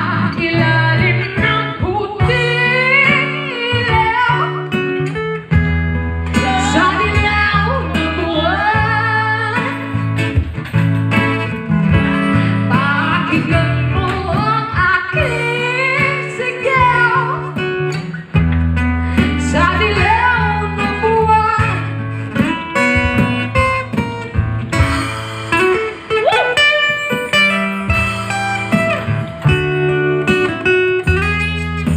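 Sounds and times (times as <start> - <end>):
woman singing into a microphone: 0.0 - 5.2, 6.3 - 10.3, 12.1 - 18.2, 18.8 - 23.7
acoustic guitar: 0.0 - 31.9.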